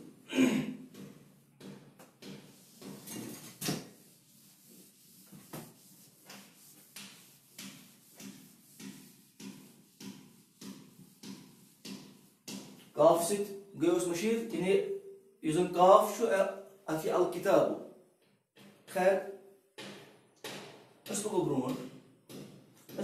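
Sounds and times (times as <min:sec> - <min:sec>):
eraser wiping whiteboard: 0:00.9 - 0:13.7.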